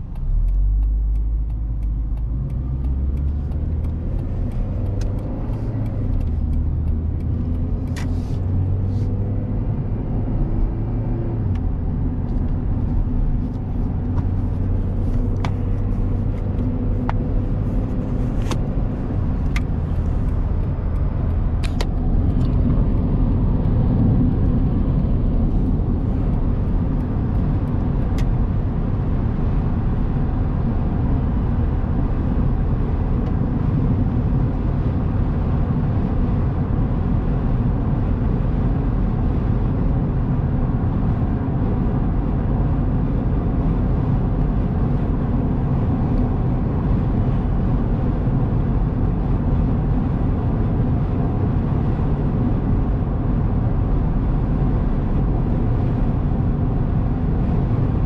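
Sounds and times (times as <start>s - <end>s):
car engine rumble from cabin: 0.0s - 58.0s
road noise: 0.0s - 58.0s.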